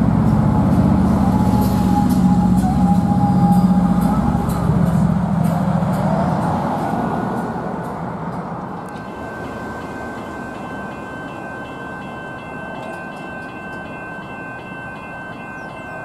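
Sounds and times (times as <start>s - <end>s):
level crossing warning bell: 8.8s - 16.0s.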